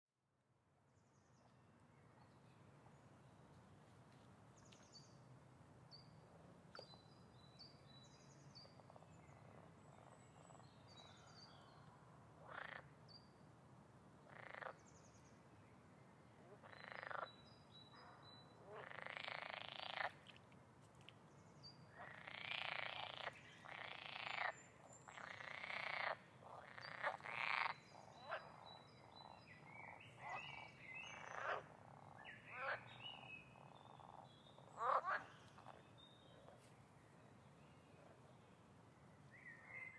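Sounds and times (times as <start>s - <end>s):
frogs croaking: 8.6s - 11.7s, 12.4s - 13.0s, 14.3s - 14.9s, 16.4s - 20.4s, 21.9s - 36.6s.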